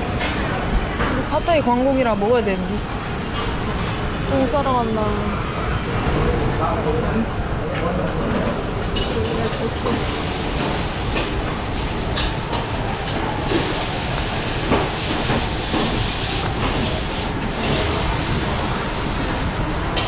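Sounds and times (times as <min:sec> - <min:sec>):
gas burner roaring: 0:07.4 - 0:20.0.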